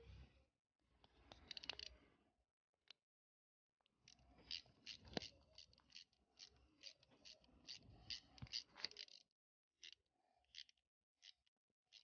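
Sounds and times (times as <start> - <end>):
socket ratchet clicking: 6.8 - 9.2.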